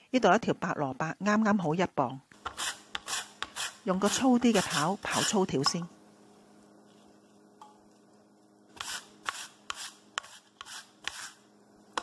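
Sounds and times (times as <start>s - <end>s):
radish scraping on grater: 8.8s - 11.4s.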